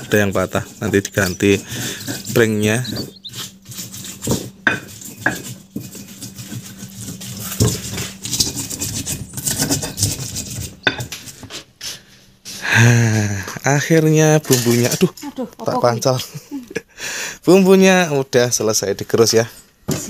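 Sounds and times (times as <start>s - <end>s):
pestle pounding in mortar: 0.0s - 11.6s.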